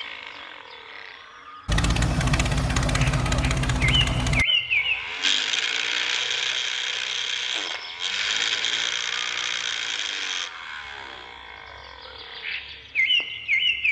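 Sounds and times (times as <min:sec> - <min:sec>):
circular saw blade whirring: 0:01.7 - 0:04.4.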